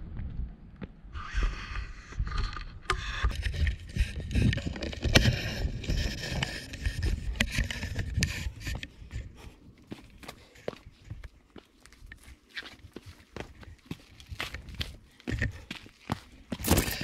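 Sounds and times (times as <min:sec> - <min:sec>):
wind buffeting microphone: 0:00.0 - 0:11.3
boots scraping on rock: 0:03.8 - 0:17.0.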